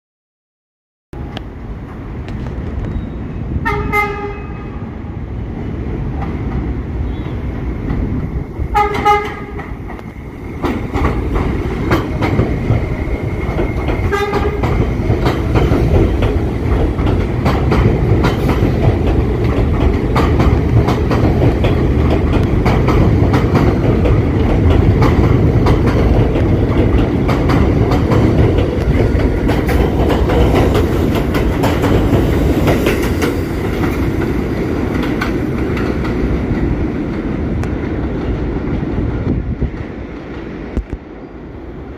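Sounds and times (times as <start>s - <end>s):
train rumble: 1.2s - 41.9s
train horn toots: 3.6s - 4.9s, 8.7s - 9.6s, 14.0s - 14.8s
wheels clacking over rail joints: 8.7s - 40.9s.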